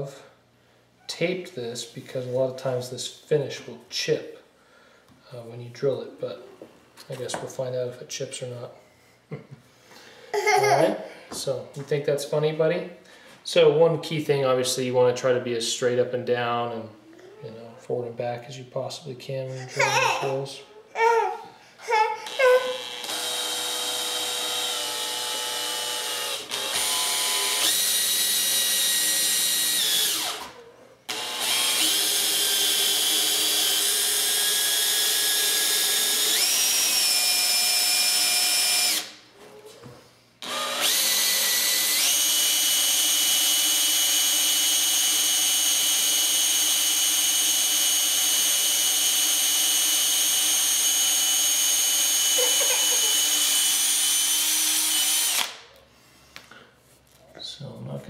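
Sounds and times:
cordless drill whining: 0:22.2 - 0:39.2, 0:40.4 - 0:55.6.

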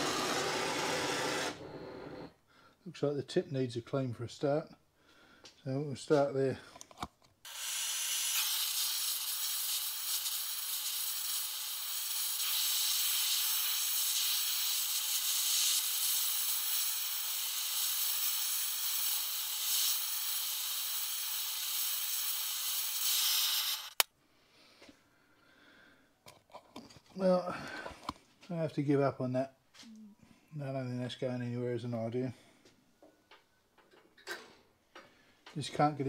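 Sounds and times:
gas torch flame hissing: 0:07.5 - 0:24.0.

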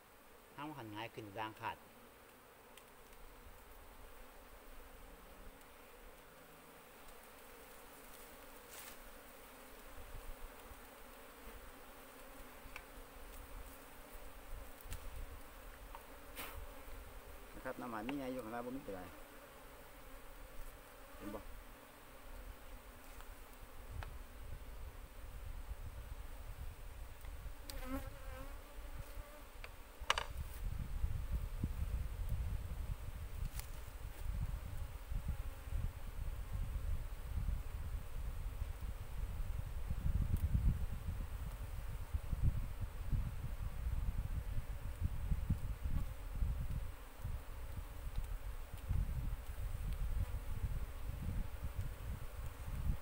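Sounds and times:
bees buzzing: 0:00.0 - 0:30.2.

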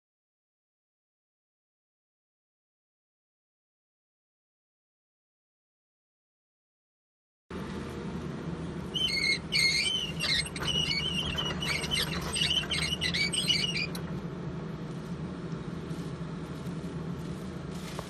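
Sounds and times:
excavator diesel engine humming: 0:07.6 - 0:18.0
high-pitched chirping squeals: 0:08.9 - 0:14.0.

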